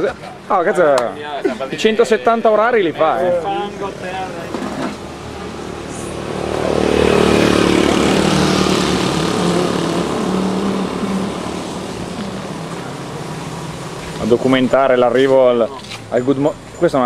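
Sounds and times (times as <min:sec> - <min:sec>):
vehicle engine running: 0:03.6 - 0:17.0.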